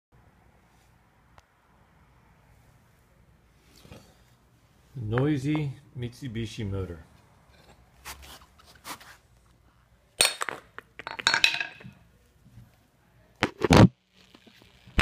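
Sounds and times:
hard parts clinking and knocking: 10.2s - 12.0s.

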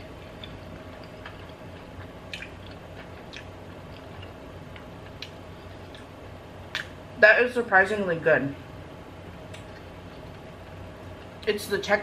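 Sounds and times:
person chewing food: 0.0s - 7.0s.

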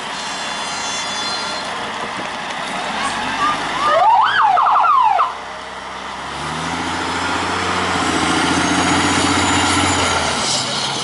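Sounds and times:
truck engine under load: 0.0s - 4.4s, 5.3s - 11.0s
siren wailing and yelping: 3.4s - 5.3s.

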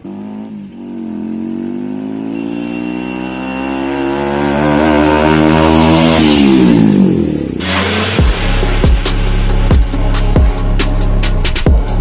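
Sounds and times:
motorcycle engine approaching: 0.0s - 9.0s.

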